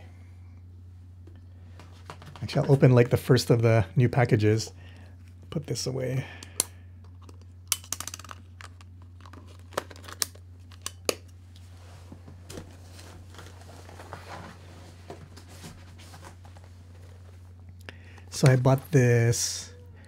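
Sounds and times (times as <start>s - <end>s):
low hum: 0.0s - 20.0s
cardboard package rustling: 12.3s - 17.6s.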